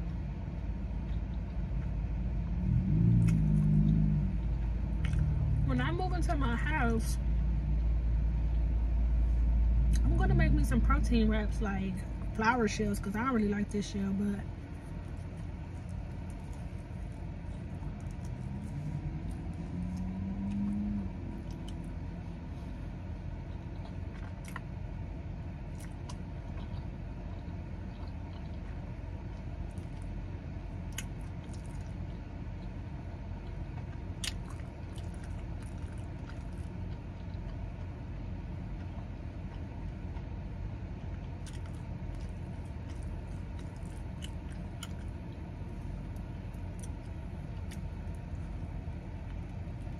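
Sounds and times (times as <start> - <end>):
low rumble inside a car: 0.0 - 49.9
short low hum: 0.0 - 49.9
person chewing crunchy food: 2.8 - 5.5, 14.6 - 22.8, 23.4 - 24.8, 25.6 - 30.2, 30.8 - 49.9.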